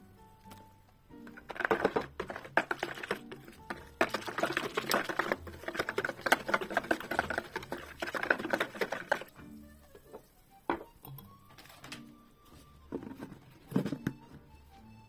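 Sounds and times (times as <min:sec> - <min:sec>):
whisk clattering against bowl: 0:01.4 - 0:09.4.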